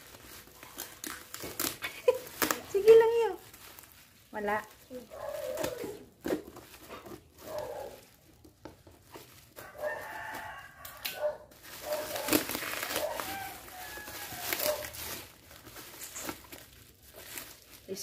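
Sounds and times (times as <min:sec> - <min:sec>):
package being opened: 0:00.0 - 0:18.0
rooster crowing: 0:09.6 - 0:12.2, 0:12.8 - 0:15.0.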